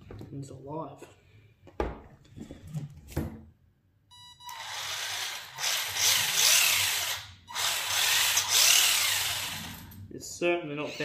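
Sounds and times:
electric motor whirring: 0:04.5 - 0:10.0.

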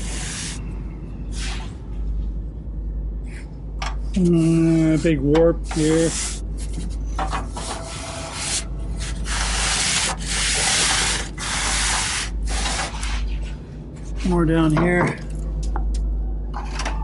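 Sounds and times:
gloved hand rubbing rusty steel: 0:04.2 - 0:14.4.

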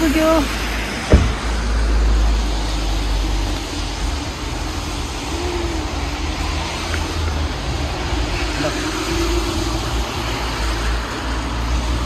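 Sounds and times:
sharp knock: 0:01.1 - 0:01.4.

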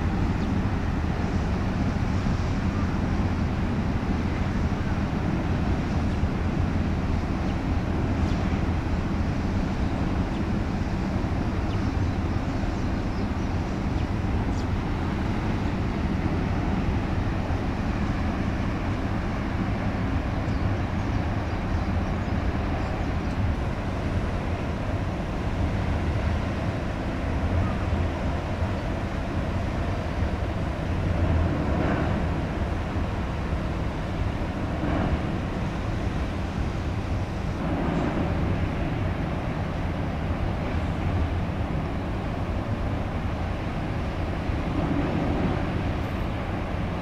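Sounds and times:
open-air noise: 0:00.0 - 0:47.0
ship engine low rumble: 0:00.0 - 0:47.0.

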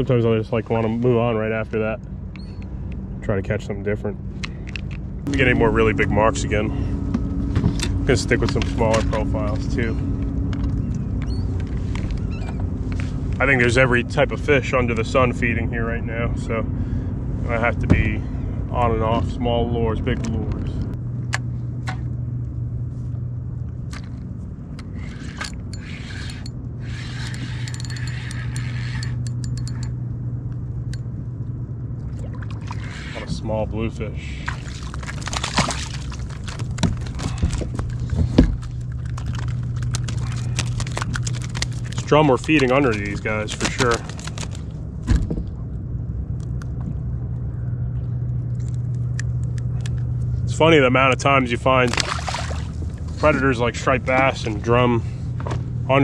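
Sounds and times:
low engine drone: 0:00.0 - 0:56.0
steady low hum: 0:00.0 - 0:56.0
fishing reel ratcheting clicks: 0:24.8 - 0:29.9.

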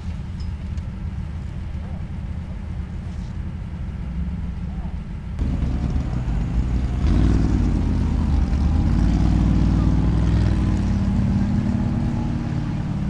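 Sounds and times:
engine running at low revs: 0:00.0 - 0:13.0.

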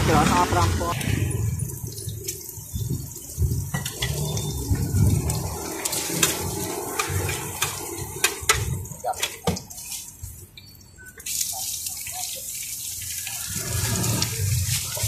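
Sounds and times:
metal spatula scraping frying pan: 0:03.8 - 0:08.4.

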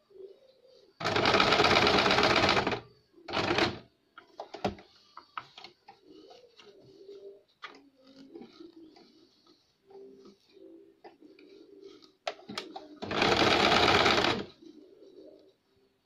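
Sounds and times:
sewing machine stitching: 0:01.0 - 0:03.8, 0:13.0 - 0:14.5.

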